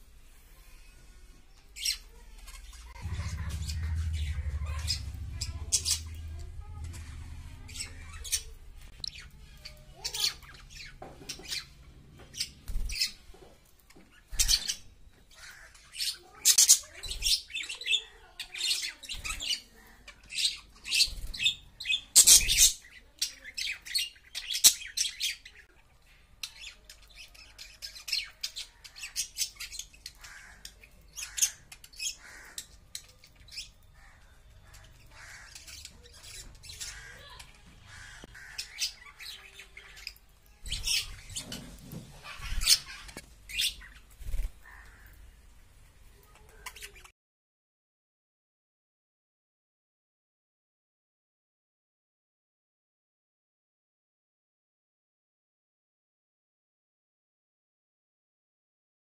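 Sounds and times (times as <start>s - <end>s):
budgerigars chirping and squawking: 1.8s - 13.4s, 14.1s - 45.2s.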